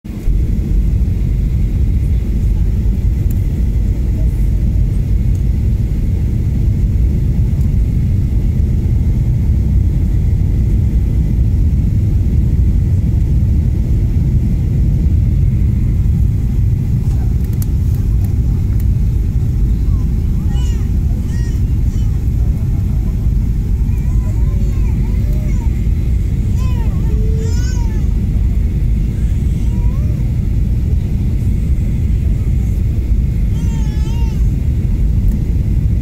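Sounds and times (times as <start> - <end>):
jet engines rumbling in cabin: 0.1 - 36.0.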